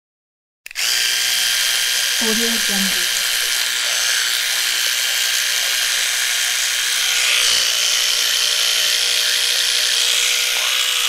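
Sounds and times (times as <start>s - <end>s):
electric toothbrush buzzing: 0.7s - 11.0s
toothbrush scrubbing teeth: 0.7s - 11.0s.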